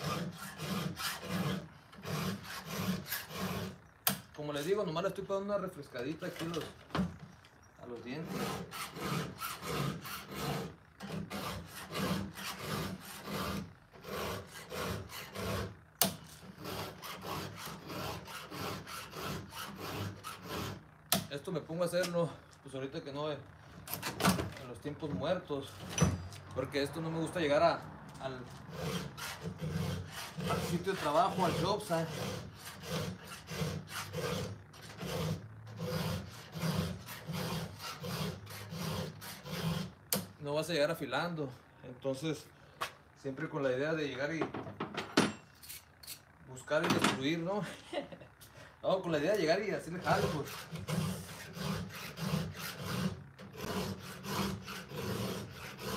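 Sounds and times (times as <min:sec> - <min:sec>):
file rasping on chainsaw chain: 0:00.0 - 0:03.8, 0:08.0 - 0:20.8, 0:28.4 - 0:40.2, 0:49.8 - 0:55.9.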